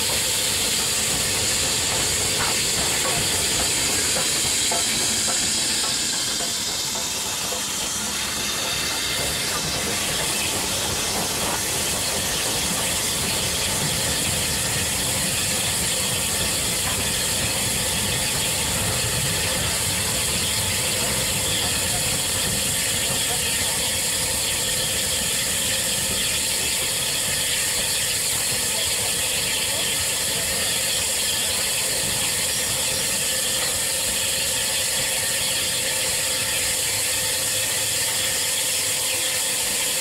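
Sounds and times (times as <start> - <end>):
steam locomotive hissing: 0.0 - 40.0
train wheels rumbling and clattering: 0.0 - 40.0.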